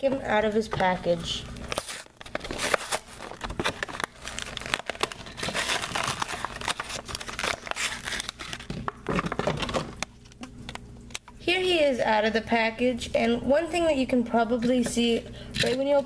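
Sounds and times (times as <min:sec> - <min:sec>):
plastic packaging crackling: 0:01.5 - 0:11.3.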